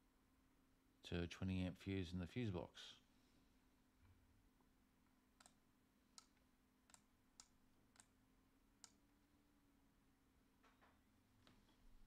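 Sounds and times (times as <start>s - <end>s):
faint low hum: 0.0s - 12.0s
computer mouse clicks: 5.4s - 5.6s, 6.2s - 8.2s, 8.8s - 9.0s.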